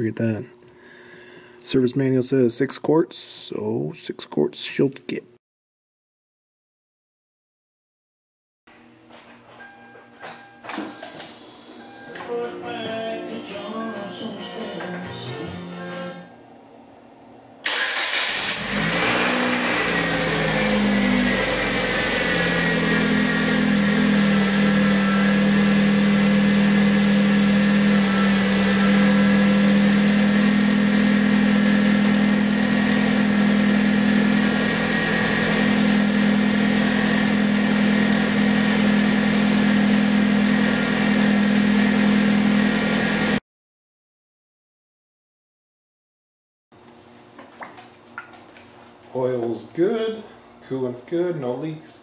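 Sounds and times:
car engine starting and idling: 0:17.6 - 0:43.4.

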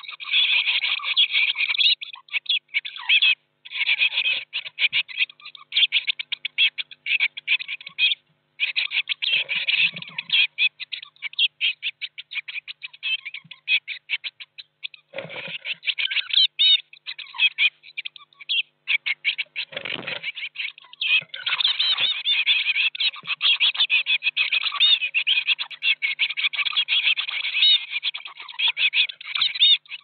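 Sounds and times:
nestlings cheeping: 0:00.0 - 0:29.9
bumps and scuffles in nest box: 0:15.2 - 0:15.7, 0:19.7 - 0:20.3.

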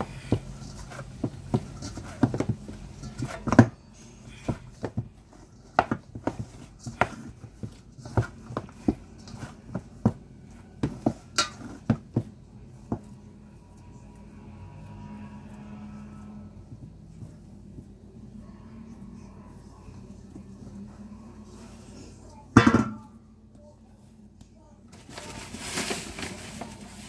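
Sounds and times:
metal bowl knocking and clanking: 0:10.8 - 0:12.2, 0:22.5 - 0:23.2.

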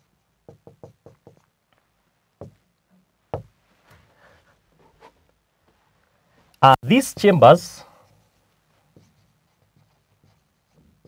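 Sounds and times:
marker pen knocking on whiteboard: 0:00.4 - 0:01.5, 0:02.4 - 0:02.6, 0:03.3 - 0:03.6.

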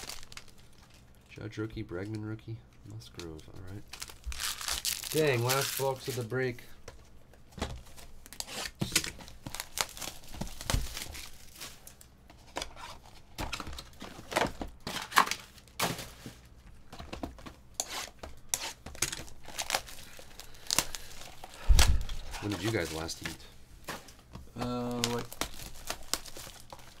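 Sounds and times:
plastic wrap tearing and crinkling: 0:00.0 - 0:01.2, 0:03.6 - 0:06.4, 0:07.9 - 0:12.1, 0:18.9 - 0:23.4, 0:24.8 - 0:27.0.

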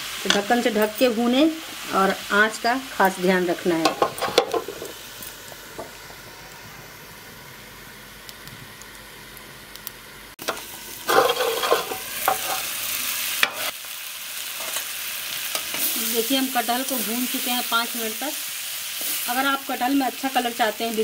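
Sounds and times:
food sizzling in oil: 0:00.0 - 0:21.0
spoon scraping and knocking pan: 0:03.8 - 0:05.0, 0:10.4 - 0:12.7, 0:13.4 - 0:13.7.

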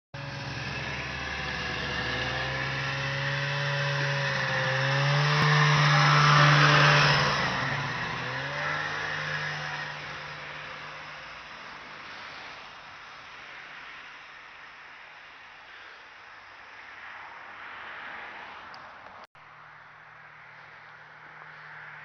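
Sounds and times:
snowmobile engine passing: 0:00.2 - 0:14.9.

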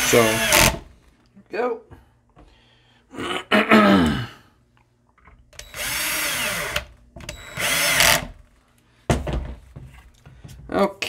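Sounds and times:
cordless drill driving screws: 0:00.0 - 0:00.8, 0:05.6 - 0:08.4.

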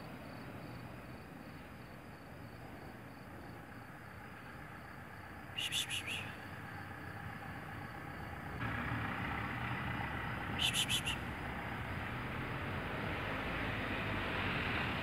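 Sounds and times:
outdoor background hiss: 0:00.0 - 0:15.0
short high chirps: 0:05.6 - 0:06.3, 0:10.6 - 0:11.2.

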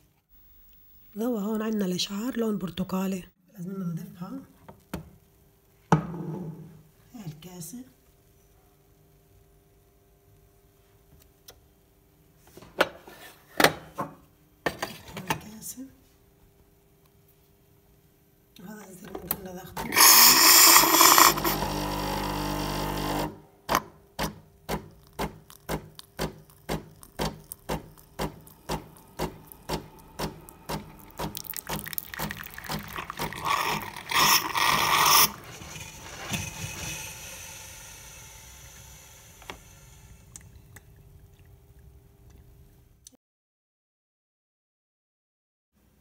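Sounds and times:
pump pulsing: 0:19.9 - 0:23.3, 0:25.7 - 0:39.1
steam and water hissing: 0:28.1 - 0:40.3.

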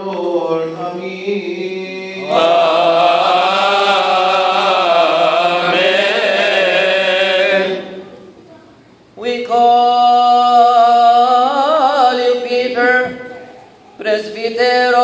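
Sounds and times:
long melismatic sung phrase: 0:02.2 - 0:08.2.

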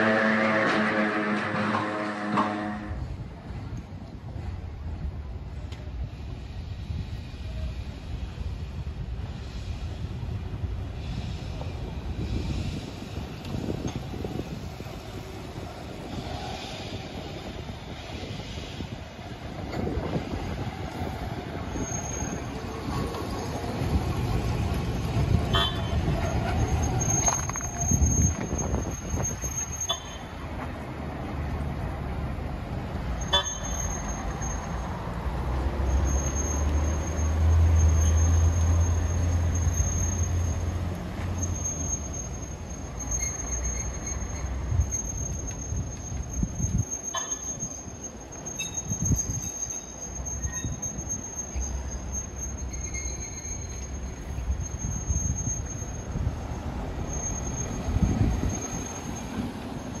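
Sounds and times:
road traffic: 0:00.0 - 1:00.0
tram rumbling on rails: 0:00.0 - 1:00.0
cars driving past: 0:12.4 - 0:46.8.

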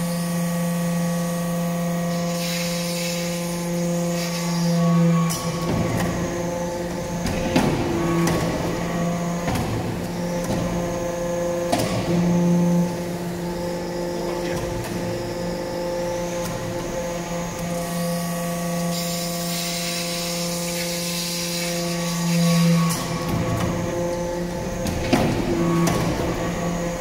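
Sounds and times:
hydraulic press hum: 0:00.0 - 0:27.0.

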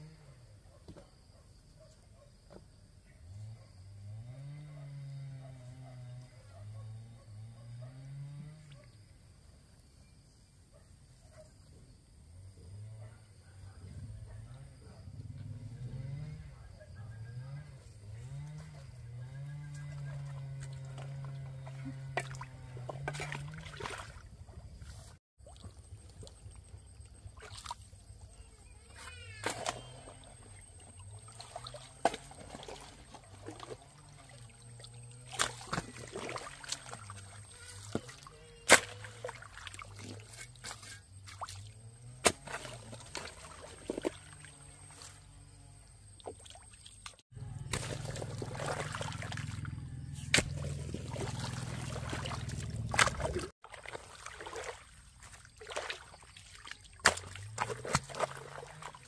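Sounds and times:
water sloshing and splashing: 0:19.8 - 0:28.4, 0:29.4 - 0:45.3, 0:46.1 - 0:59.0
low wavering hum: 0:47.3 - 0:53.5.

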